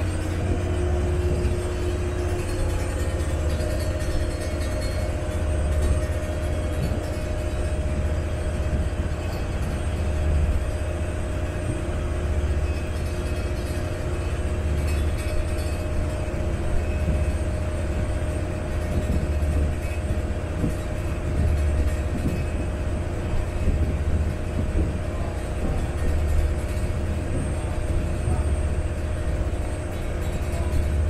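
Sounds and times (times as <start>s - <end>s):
wind and water rushing: 0.0s - 4.3s
boat engine low rumble: 0.0s - 31.0s
steady hum: 0.0s - 31.0s.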